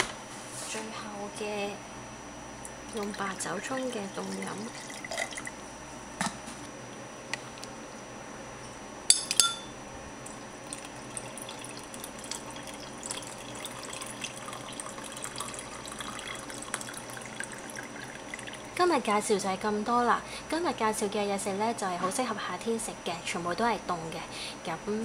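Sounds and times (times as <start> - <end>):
drink pouring into glass: 2.9 - 5.6, 10.2 - 18.8
clinks against glass: 9.1 - 9.7.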